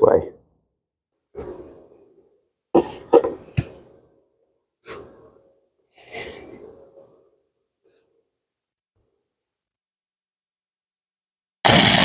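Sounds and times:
arc welder crackling hiss: 0:11.7 - 0:12.0.

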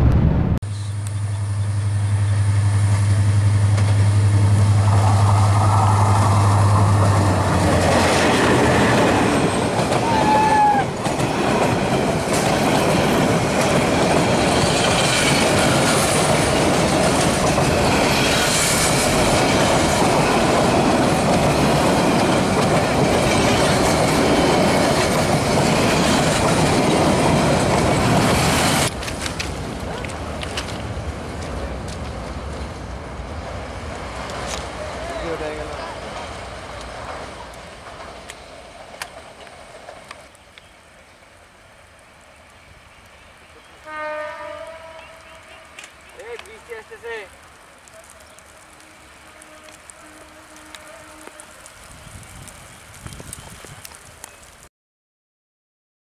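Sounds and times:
diesel locomotive engine drone: 0:00.0 - 0:53.1
train wheels clattering on rails: 0:03.7 - 0:32.9, 0:34.0 - 0:40.3.

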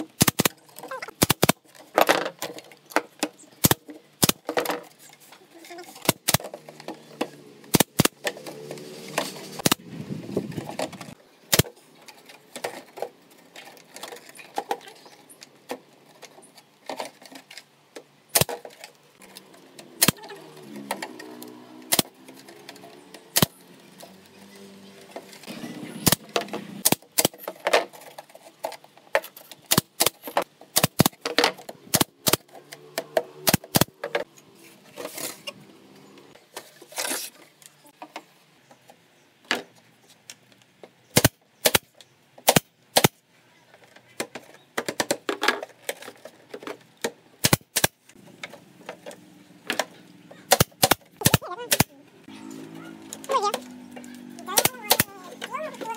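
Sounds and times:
nail gun shots: 0:00.2 - 0:00.6, 0:01.2 - 0:01.6, 0:03.6 - 0:04.5, 0:06.0 - 0:06.5, 0:07.7 - 0:08.2, 0:09.6 - 0:09.8, 0:11.5 - 0:11.7, 0:18.3 - 0:18.6, 0:20.0 - 0:20.2, 0:21.9 - 0:22.2, 0:23.3 - 0:23.6, 0:26.0 - 0:27.4, 0:29.6 - 0:31.2, 0:31.9 - 0:32.5, 0:33.4 - 0:34.0, 0:41.1 - 0:43.2, 0:47.4 - 0:48.0, 0:50.4 - 0:51.9, 0:54.6 - 0:55.1.

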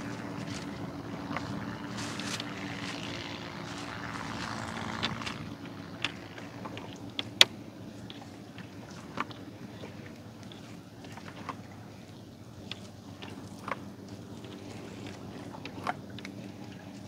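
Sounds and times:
boat engine humming: 0:00.0 - 0:17.0.

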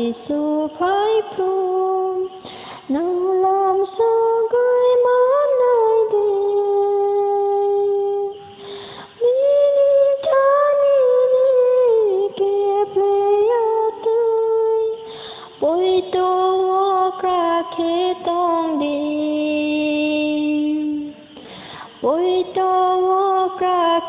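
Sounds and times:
woman singing solo: 0:00.0 - 0:24.0
audible breath: 0:02.4 - 0:02.9, 0:08.5 - 0:09.2, 0:15.0 - 0:15.6, 0:21.4 - 0:22.0.

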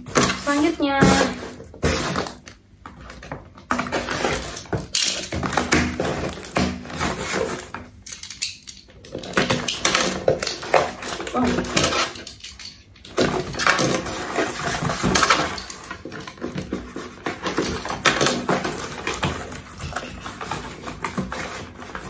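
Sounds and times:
cardboard flaps scraping: 0:03.0 - 0:07.9, 0:13.2 - 0:22.0.

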